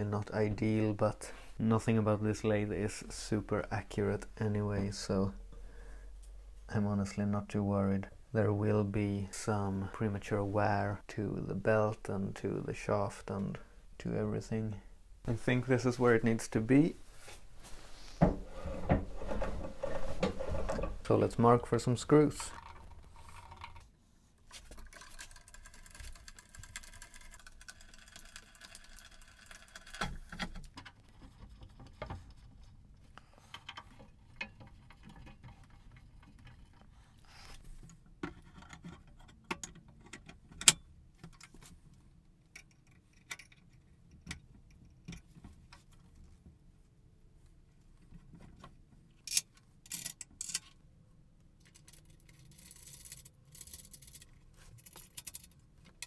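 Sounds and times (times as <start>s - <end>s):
small metal hardware clicking: 39.4s - 40.9s, 49.3s - 50.8s.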